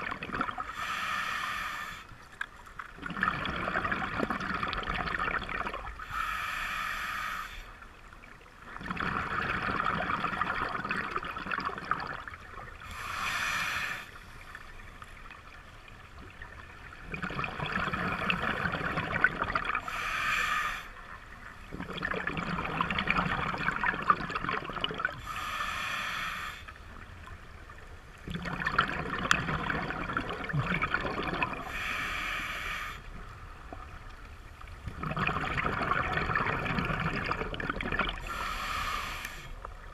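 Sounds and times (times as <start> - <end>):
exhaled bubbles rushing: 0.0 - 0.7, 3.0 - 5.9, 8.8 - 12.5, 16.5 - 19.8, 21.7 - 25.2, 28.2 - 31.7, 34.8 - 38.2
diver breathing through regulator: 0.7 - 2.2, 6.0 - 7.8, 12.8 - 14.5, 19.7 - 21.0, 25.2 - 26.8, 31.5 - 33.2, 38.2 - 39.7.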